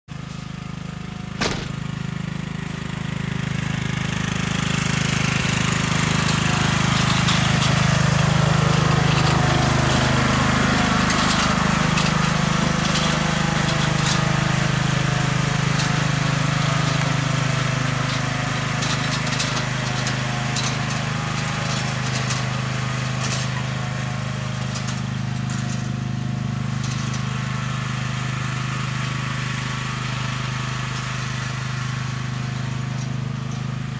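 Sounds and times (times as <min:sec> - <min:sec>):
riding mower engine running: 0:00.1 - 0:33.9.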